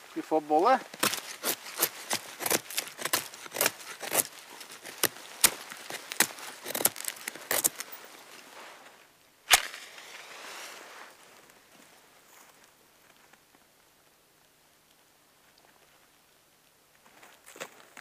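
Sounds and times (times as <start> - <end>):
wood splinters snapping: 0.9 - 7.9
match striking and flaring: 0.9 - 8.0, 9.5 - 11.2.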